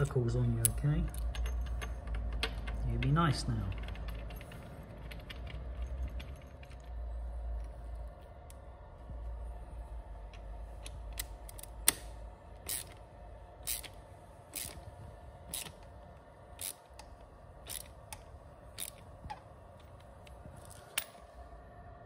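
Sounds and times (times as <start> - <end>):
ratchet wrench ratcheting: 10.8 - 13.0, 13.6 - 14.9, 15.5 - 15.8, 16.5 - 19.4.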